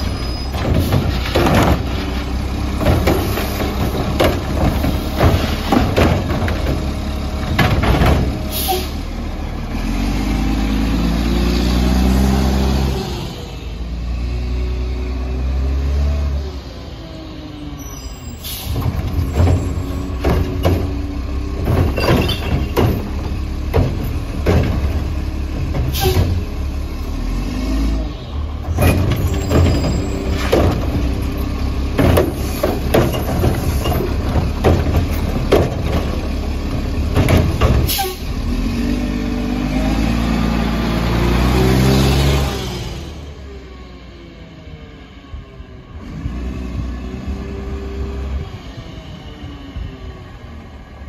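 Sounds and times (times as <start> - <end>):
carts knocking and clanking: 0.0 - 8.5, 18.8 - 26.6, 28.7 - 38.2
garbage truck diesel engine: 0.0 - 51.0.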